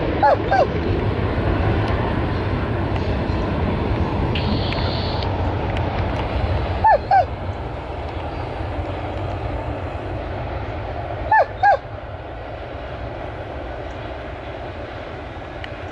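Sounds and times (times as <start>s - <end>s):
low background rumble: 0.0s - 15.9s
dog yipping: 0.2s - 0.7s, 6.8s - 7.3s.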